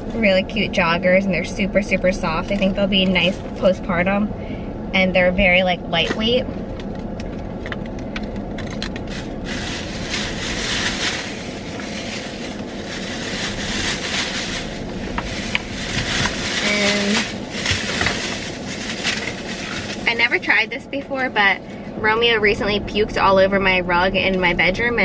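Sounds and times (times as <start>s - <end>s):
plastic bag crinkling: 6.8s - 20.2s
fabric rustling: 9.1s - 20.1s.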